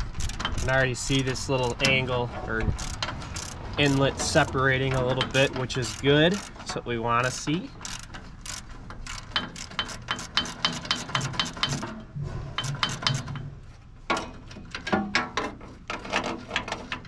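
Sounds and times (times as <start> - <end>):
ratchet wrench clicking: 0.0 - 2.0, 2.6 - 6.6, 7.8 - 11.8.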